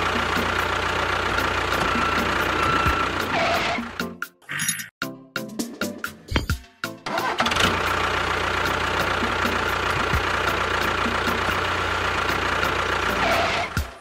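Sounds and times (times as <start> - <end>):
toy tractor engine humming: 0.0 - 4.0, 7.1 - 14.0.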